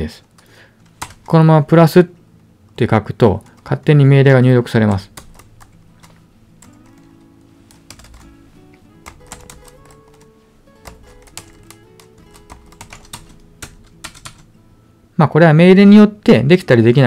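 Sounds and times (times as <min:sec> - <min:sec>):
quiet background music: 0:00.0 - 0:17.0
computer keyboard typing: 0:00.2 - 0:01.3, 0:04.9 - 0:07.1, 0:07.7 - 0:08.4, 0:09.0 - 0:14.5.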